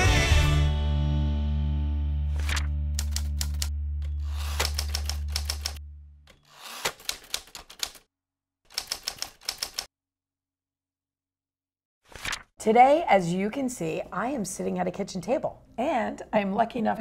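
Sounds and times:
typewriter keys clacking: 2.4 - 5.8, 6.4 - 8.0, 8.7 - 9.9.

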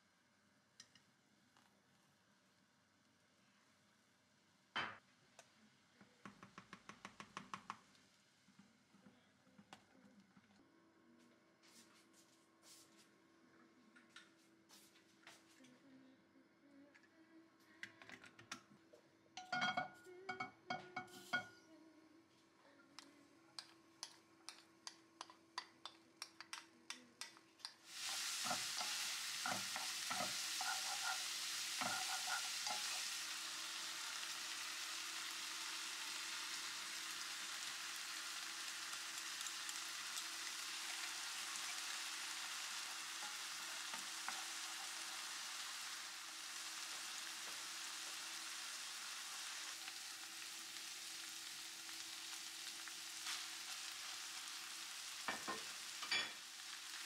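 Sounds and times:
food sizzling with stirring: 19.4 - 21.6, 23.0 - 57.0.

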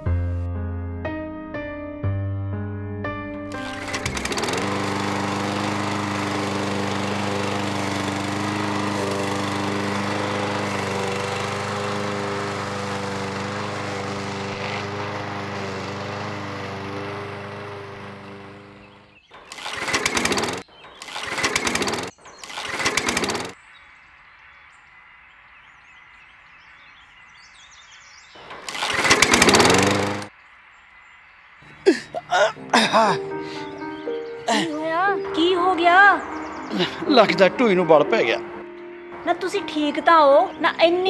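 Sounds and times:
lawn mower engine running: 3.4 - 23.6, 28.4 - 30.3, 36.7 - 38.4
engine surges: 3.5 - 23.6, 28.4 - 30.3.

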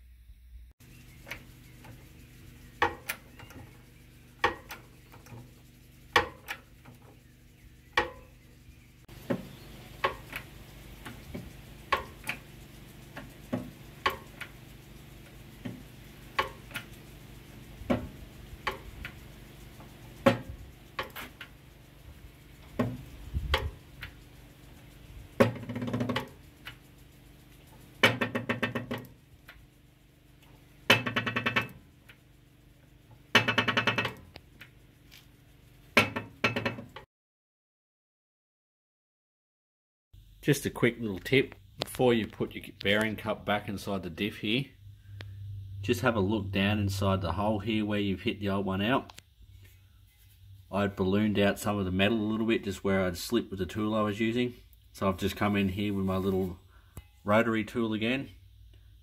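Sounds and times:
held low chord: 44.8 - 47.8.

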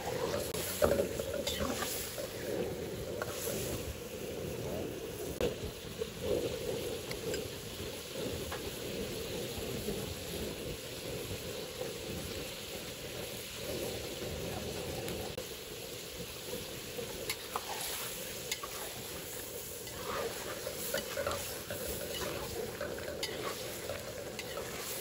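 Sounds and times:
seafood sizzling in a wok: 0.0 - 25.0
metal spatula clicking on wok: 24.4 - 24.8.

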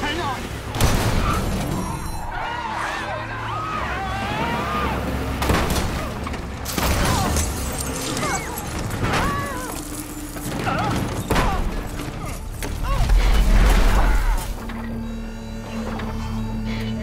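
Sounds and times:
siren wails: 1.3 - 5.4, 13.0 - 17.0.

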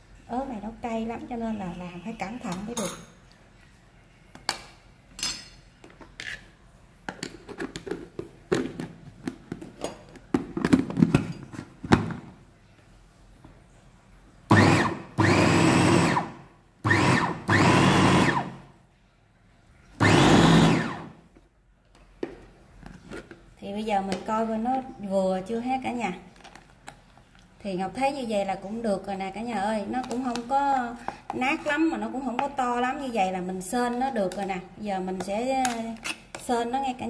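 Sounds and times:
electric food chopper grinding: 14.5 - 18.6, 20.0 - 21.1.

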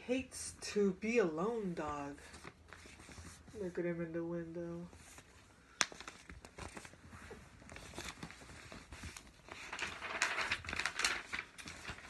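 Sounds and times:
paper pages rustling: 2.0 - 3.8, 4.8 - 12.0.

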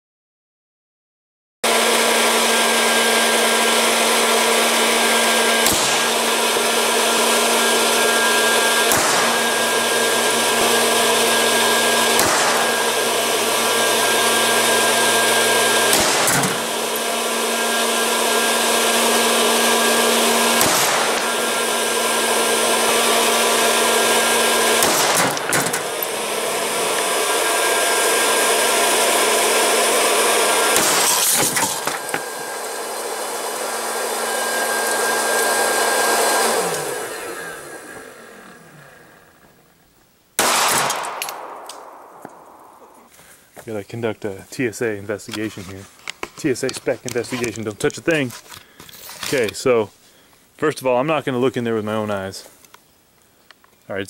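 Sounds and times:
popcorn popper whirring: 1.6 - 39.6.

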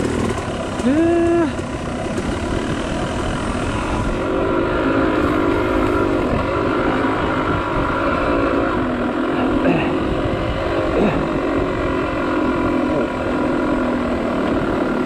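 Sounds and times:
dirt bike engine: 0.0 - 15.0.

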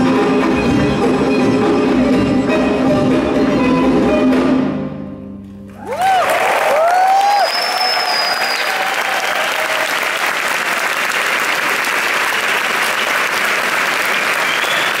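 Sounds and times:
concert audience applauding: 5.7 - 15.0.

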